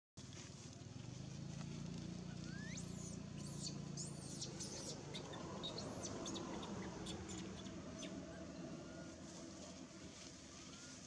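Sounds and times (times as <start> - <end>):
small birds chirping: 2.3 - 9.2.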